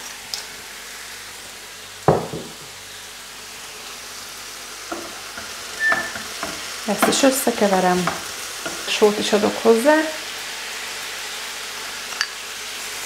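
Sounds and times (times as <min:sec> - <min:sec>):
food sizzling in a pan: 0:00.0 - 0:13.0
sharp knock: 0:02.1 - 0:02.6.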